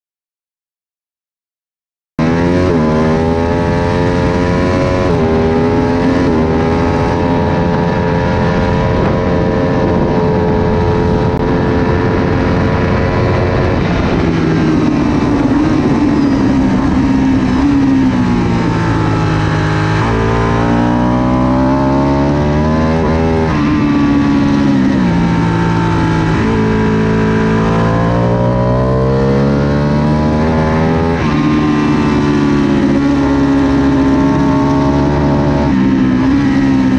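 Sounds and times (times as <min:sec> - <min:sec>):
motorcycle engine revving with gear shifts: 0:02.2 - 0:36.9.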